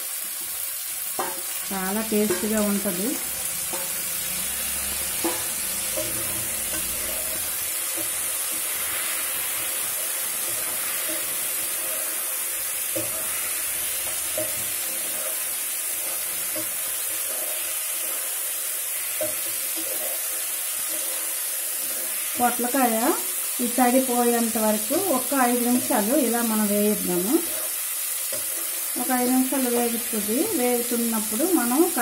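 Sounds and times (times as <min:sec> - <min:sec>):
vegetables sizzling in oil: 0:00.0 - 0:32.0
spatula scraping pan: 0:01.0 - 0:22.6.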